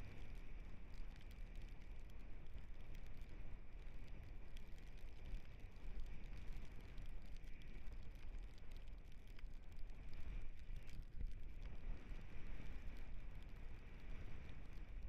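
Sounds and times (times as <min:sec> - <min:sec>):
small clicks and rattles: 0:00.1 - 0:15.0.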